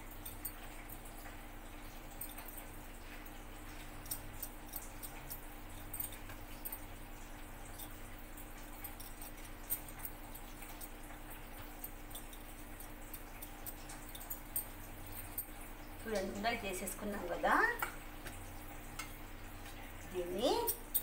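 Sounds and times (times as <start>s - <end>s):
low steady hum: 0.0s - 21.0s
faint clicks and ticks: 0.1s - 16.4s.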